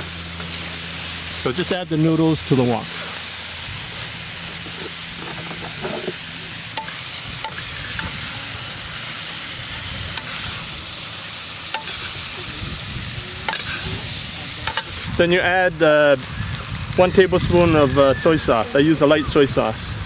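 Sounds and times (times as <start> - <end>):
food sizzling in a wok: 0.0 - 16.9
utensils clinking against wok: 4.4 - 8.5, 10.1 - 10.7, 11.7 - 12.3, 13.4 - 15.1.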